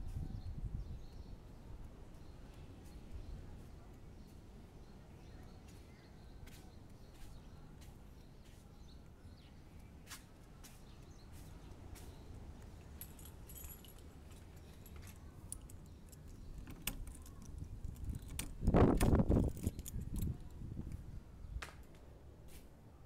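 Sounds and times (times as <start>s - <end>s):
keys jangling: 12.6s - 20.6s
key turning in door lock: 12.8s - 20.6s.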